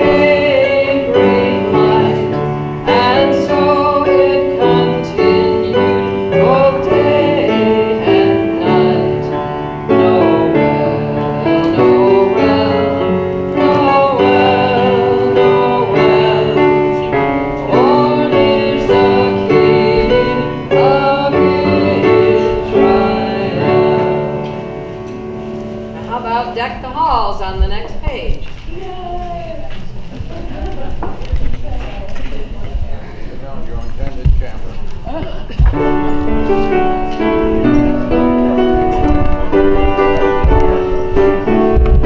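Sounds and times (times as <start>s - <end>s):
group singing a christmas song: 0.0s - 25.9s
instrumental accompaniment: 0.0s - 27.9s, 35.0s - 42.0s.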